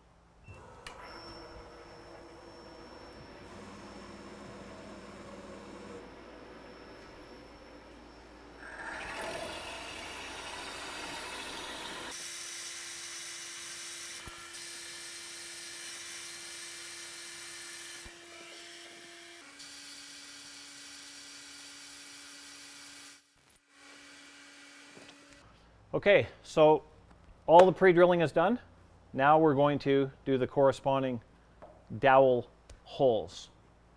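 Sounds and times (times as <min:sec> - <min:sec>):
spindle whine with hiss: 0:00.6 - 0:12.1
milling machine cutting metal: 0:00.6 - 0:12.4.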